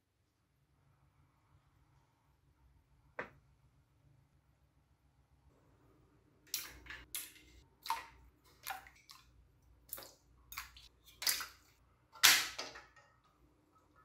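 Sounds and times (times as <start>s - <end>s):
plastic parts splashing into water: 6.5s - 13.0s.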